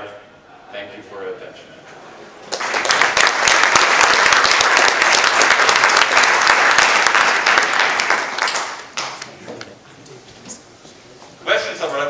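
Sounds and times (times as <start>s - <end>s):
audience applauding: 2.4s - 9.7s.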